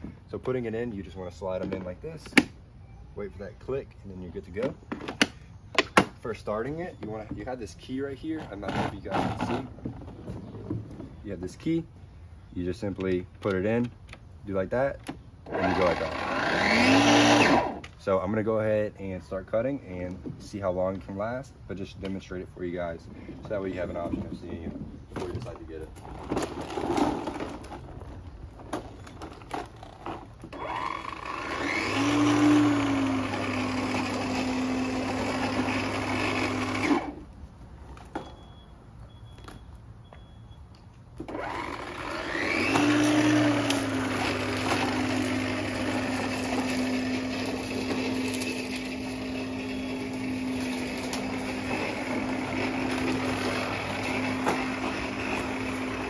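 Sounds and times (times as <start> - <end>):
lawn mower wheeled knocks: 8.4 - 11.2
electric lawn mower motor whine: 15.4 - 18.0, 29.1 - 37.4, 41.2 - 56.0.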